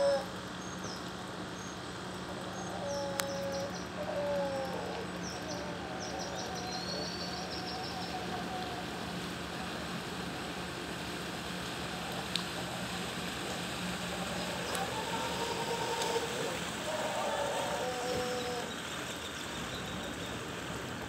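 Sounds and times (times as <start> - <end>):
birds chirping: 0.0 - 8.6.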